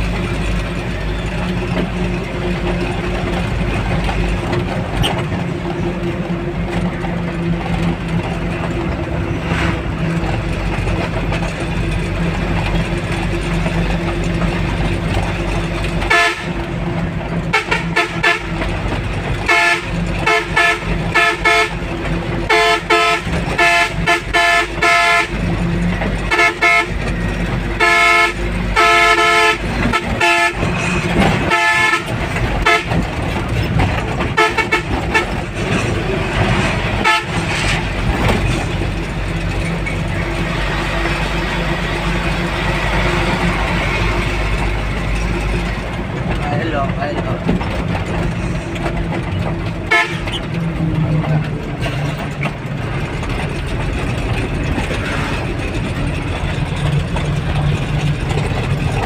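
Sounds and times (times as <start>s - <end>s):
truck diesel engine running: 0.0s - 59.0s
truck horn blasts: 16.0s - 16.7s, 17.4s - 18.7s, 19.4s - 33.3s, 34.2s - 35.4s, 37.0s - 37.6s, 49.9s - 50.5s.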